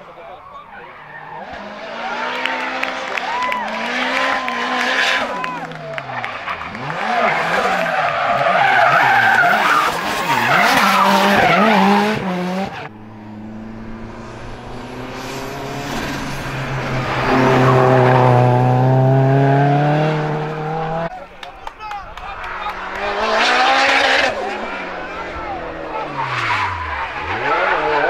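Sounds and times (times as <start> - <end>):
race car engine revving: 1.1 - 21.2, 22.2 - 28.0
tyres squealing: 6.4 - 12.9.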